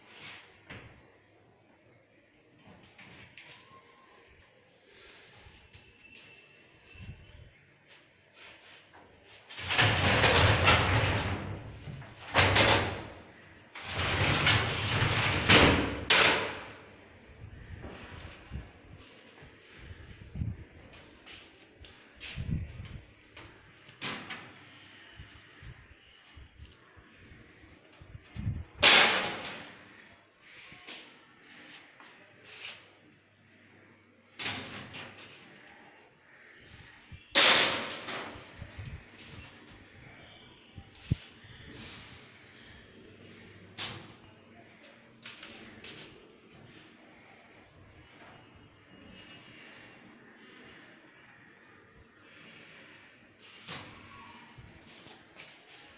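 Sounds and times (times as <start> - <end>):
cabinet door sliding and rattling: 9.5 - 13.2, 13.8 - 16.7.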